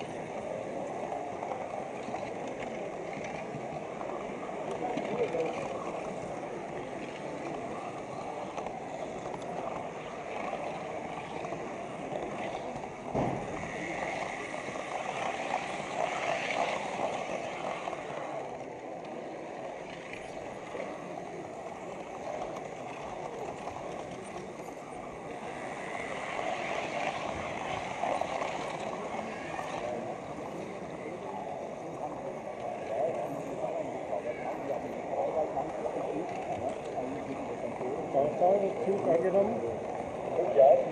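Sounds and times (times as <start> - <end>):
model train rolling rumble: 0.0 - 40.9
faint clicks: 0.8 - 12.9.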